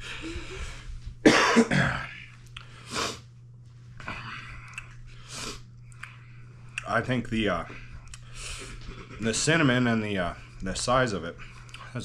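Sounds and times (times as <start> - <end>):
man coughing: 1.2 - 2.3.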